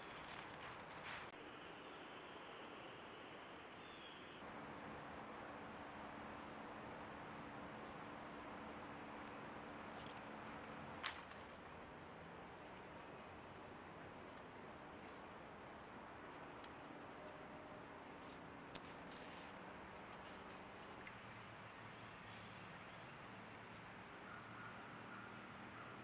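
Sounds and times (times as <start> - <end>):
small animal chirping: 13.2 - 13.4, 14.5 - 14.8.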